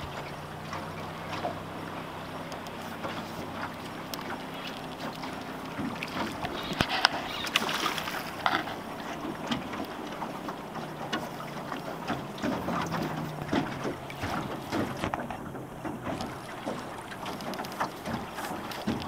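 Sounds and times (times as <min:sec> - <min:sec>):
fish thrashing and splashing: 0:00.0 - 0:19.0.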